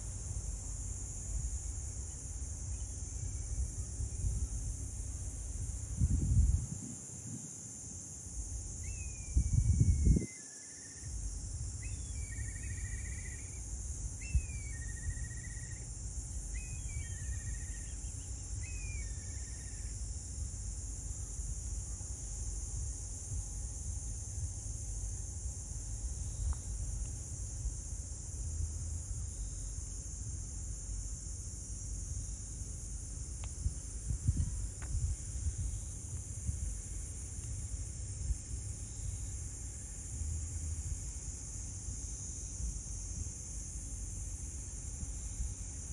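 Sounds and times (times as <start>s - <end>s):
wind rumbling on microphone: 0.0s - 10.3s, 33.1s - 41.2s
high insect drone: 0.0s - 45.9s.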